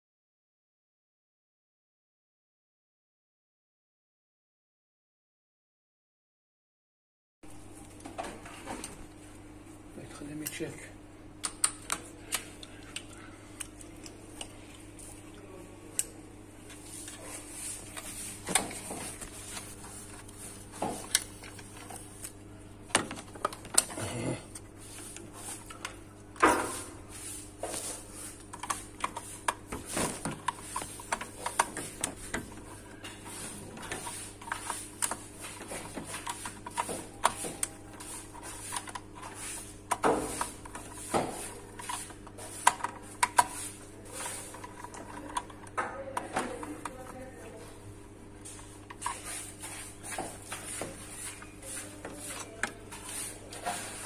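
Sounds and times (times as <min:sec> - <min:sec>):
steady low hum: 0:07.5 - 0:54.0
screwdriver on terminals: 0:28.4 - 0:45.7.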